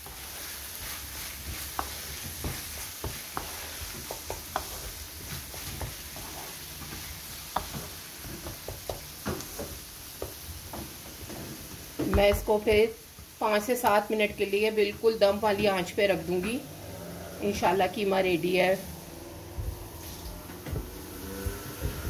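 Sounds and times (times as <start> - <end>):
spatula scraping and tapping pan: 0.0 - 15.7
minced meat sizzling in frying pan: 0.0 - 20.4.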